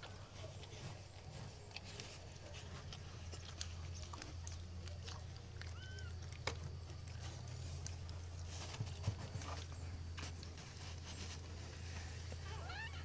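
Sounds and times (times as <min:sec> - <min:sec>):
puppies suckling clicks: 0:01.7 - 0:09.8.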